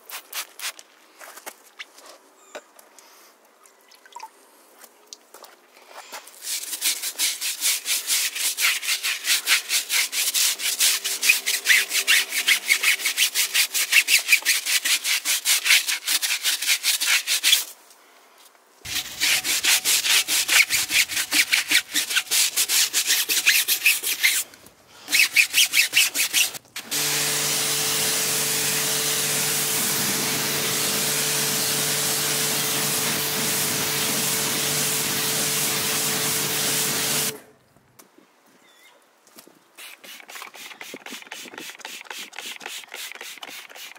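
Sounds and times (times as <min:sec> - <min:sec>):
brush scrubbing wet tyre: 0:06.3 - 0:17.6, 0:18.9 - 0:24.4, 0:25.1 - 0:37.4, 0:39.8 - 0:43.9
pressure washer jet spraying: 0:18.9 - 0:23.9, 0:25.1 - 0:37.4.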